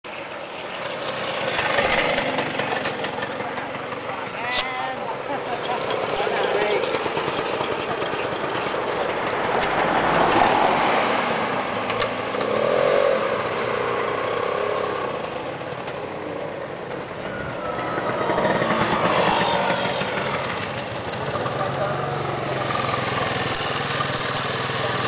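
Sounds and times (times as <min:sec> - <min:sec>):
two-stroke scooter engine revving: 0:00.7 - 0:25.0.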